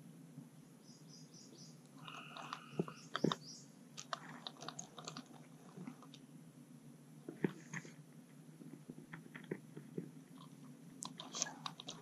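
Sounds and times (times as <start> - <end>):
small birds chirping: 0.6 - 6.3.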